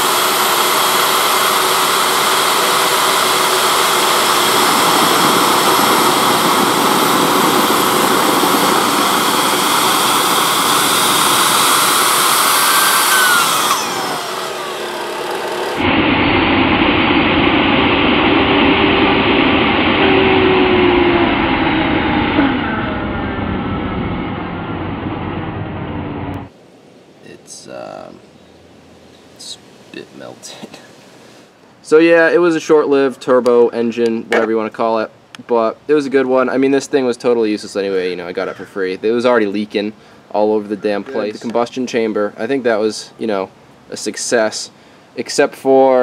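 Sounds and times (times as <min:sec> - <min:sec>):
turbojet engine roaring with whine: 0:00.0 - 0:26.6
falling whistle: 0:19.8 - 0:23.0.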